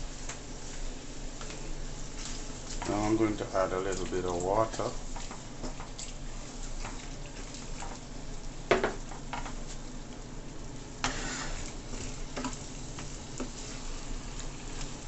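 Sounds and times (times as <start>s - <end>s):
food sizzling in a pan: 0.0s - 15.0s
spoon scraping and knocking pan: 11.0s - 12.6s.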